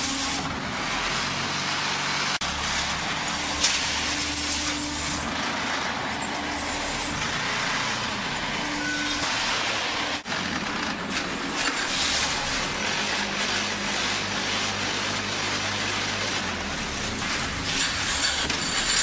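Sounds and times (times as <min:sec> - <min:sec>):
production line machinery noise: 0:00.0 - 0:19.0
sharp metallic clicks: 0:02.4 - 0:07.4.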